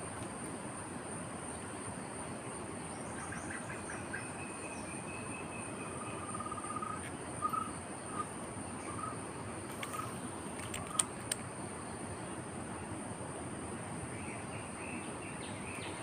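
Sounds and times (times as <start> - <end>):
background hiss: 0.0 - 16.0
insects droning: 0.0 - 16.0
bird trills and chirps: 3.0 - 9.2.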